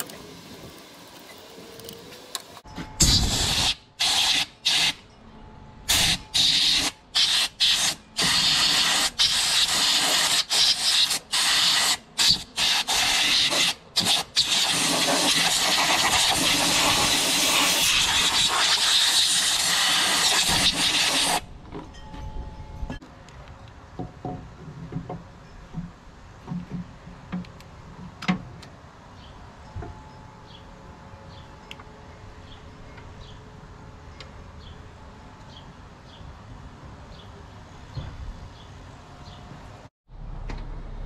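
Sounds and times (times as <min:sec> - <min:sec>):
compressed air hissing: 0:03.0 - 0:05.0, 0:05.9 - 0:21.5.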